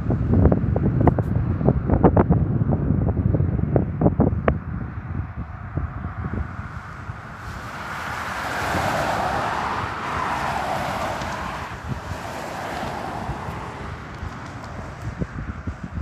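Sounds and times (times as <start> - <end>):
car passing on highway: 4.8 - 16.0.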